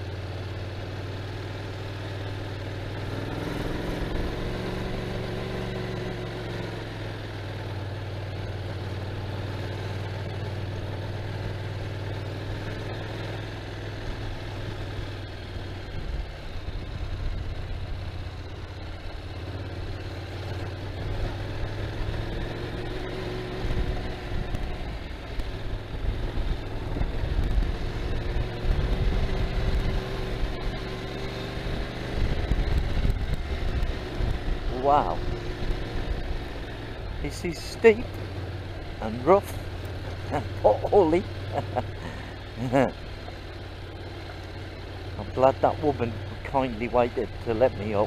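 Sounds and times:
motorcycle engine climbing: 0.0 - 48.0
wind rumble on microphone: 31.8 - 34.8.

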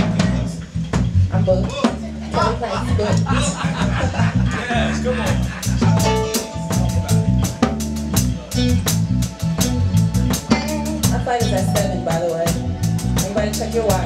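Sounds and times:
bass notes: 0.0 - 14.0
drum kit beat: 0.0 - 14.0
person singing: 4.6 - 7.6.

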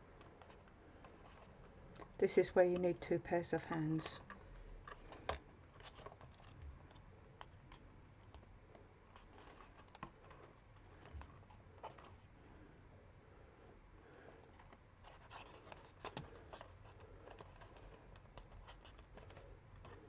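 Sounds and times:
rustling of thin card: 3.9 - 8.5, 9.1 - 12.3, 14.2 - 20.0.

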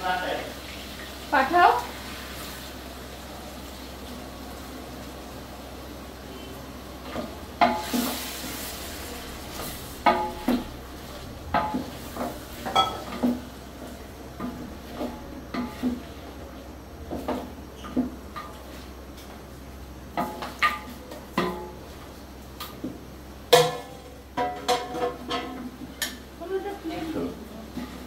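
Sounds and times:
spatula knocking metal pot: 23.5 - 26.1.

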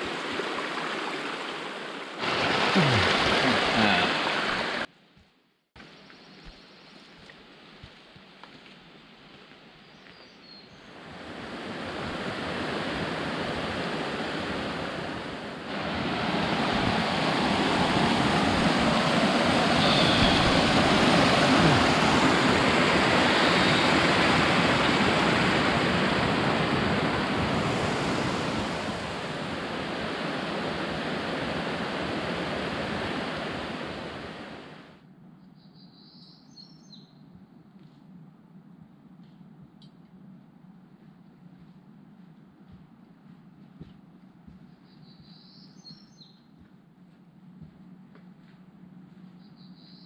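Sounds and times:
creek rushing over rocks: 0.0 - 4.9, 15.7 - 27.4.

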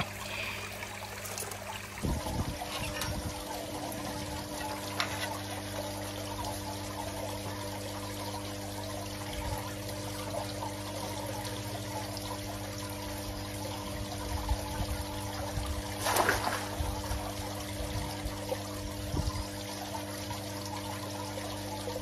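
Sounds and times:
water pouring into a pond: 0.0 - 22.0
brief splash: 16.0 - 16.9.

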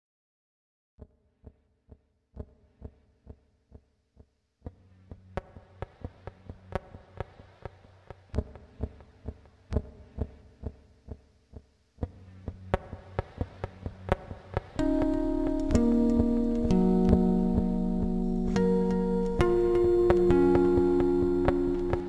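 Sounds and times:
background music with steady beat: 4.7 - 22.0.

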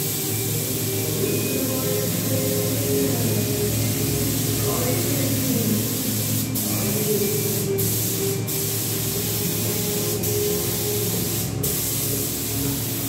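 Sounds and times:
spray gun hissing: 0.0 - 13.0.

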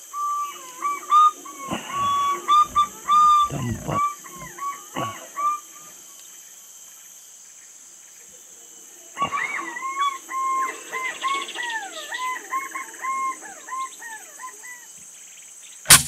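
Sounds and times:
high drone of forest insects: 0.0 - 16.0
pigeon warbling whistled calls: 0.2 - 5.6.

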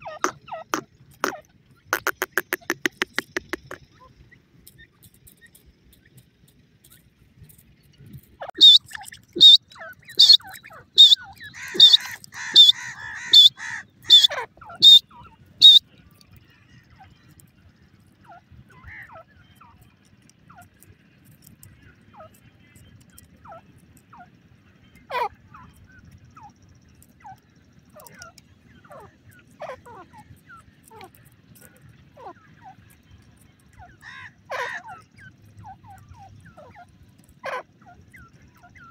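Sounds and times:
bird calling sharp high notes: 2.0 - 3.8, 8.5 - 15.8.

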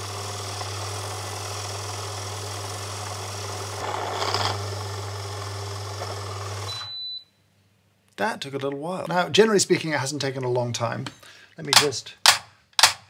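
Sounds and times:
coffee grinder motor humming: 0.0 - 6.7.

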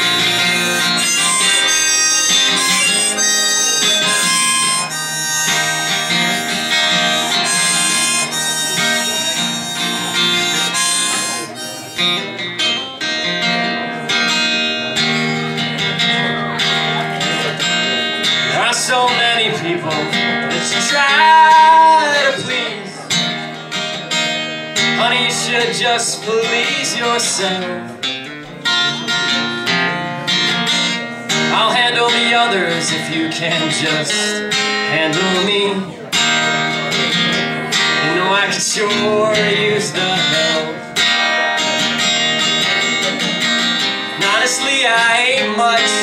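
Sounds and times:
sustained lead melody: 0.0 - 14.1
strummed acoustic guitar: 0.0 - 46.0.

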